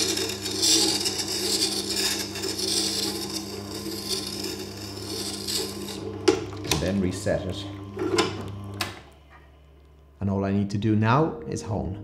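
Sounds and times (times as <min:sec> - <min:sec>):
metal grinding on stone: 0:00.0 - 0:06.6
grindstone motor hum: 0:00.0 - 0:10.2.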